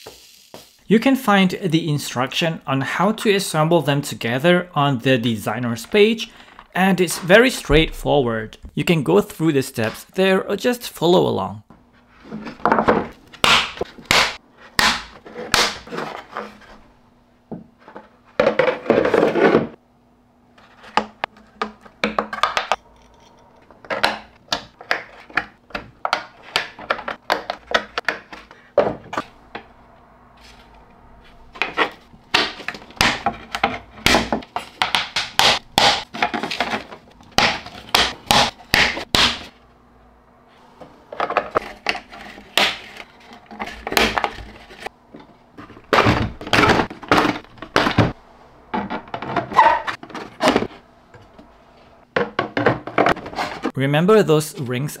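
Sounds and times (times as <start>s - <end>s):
plastic scrape: 41.1s - 44.9s, 52.8s - 53.7s.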